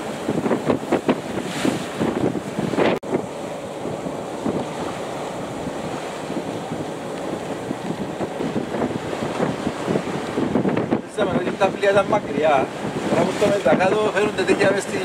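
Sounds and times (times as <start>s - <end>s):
water rushing along hull: 0.0s - 15.0s
wind buffeting microphone: 0.0s - 15.0s.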